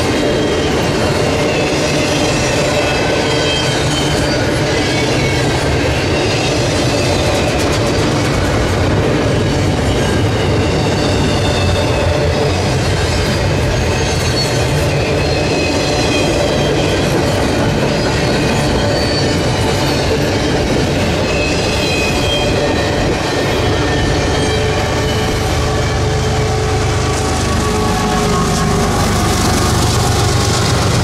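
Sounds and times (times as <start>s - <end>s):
high wheel squeals: 0.0s - 8.4s, 9.1s - 31.0s
freight train wheels rumbling on rail: 0.0s - 31.0s.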